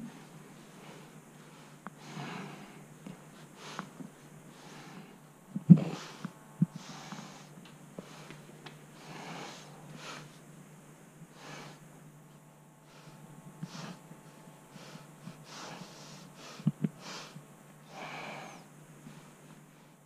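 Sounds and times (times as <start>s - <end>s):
steady low hum: 0.0s - 20.0s
person breathing through nose: 9.0s - 10.4s, 11.3s - 11.8s, 14.7s - 18.7s.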